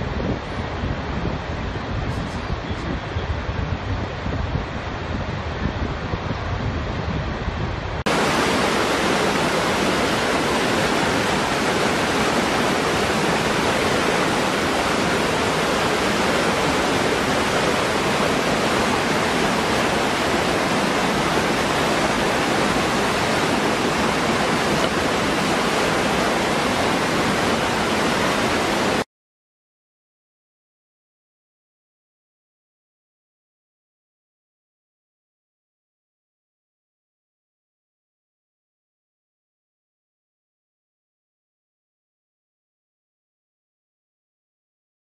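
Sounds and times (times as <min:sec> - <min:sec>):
waterfall splashing into pool: 0:08.1 - 0:29.0.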